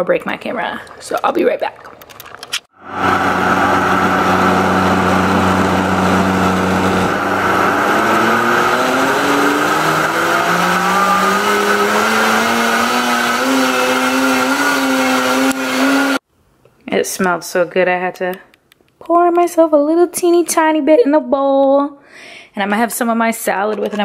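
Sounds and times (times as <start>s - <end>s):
blender motor hum: 2.8s - 16.2s.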